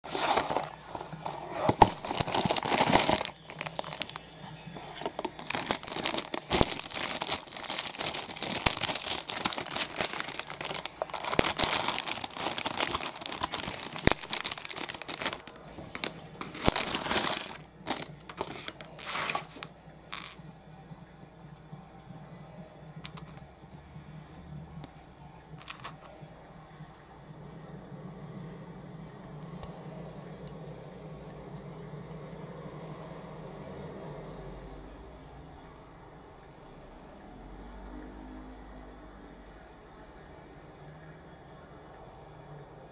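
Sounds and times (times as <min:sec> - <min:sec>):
plastic wrapping crinkling: 0:00.0 - 0:20.4.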